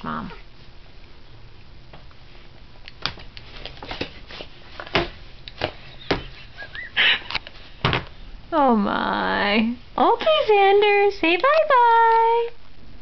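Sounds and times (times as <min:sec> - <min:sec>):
faint room noise: 0:00.0 - 0:13.0.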